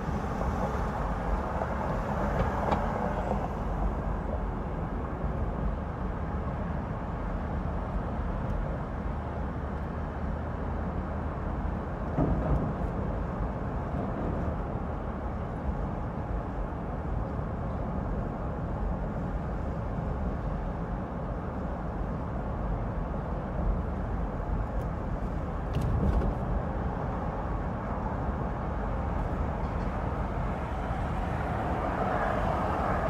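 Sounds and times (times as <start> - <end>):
road and traffic rumble: 0.0 - 33.0.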